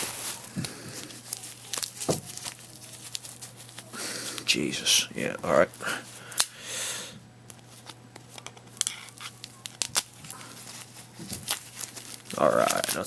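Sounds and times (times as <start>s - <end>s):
plastic crinkling: 0.0s - 4.5s, 7.6s - 13.0s
plastic wrapping ripping: 0.0s - 4.5s, 7.8s - 13.0s.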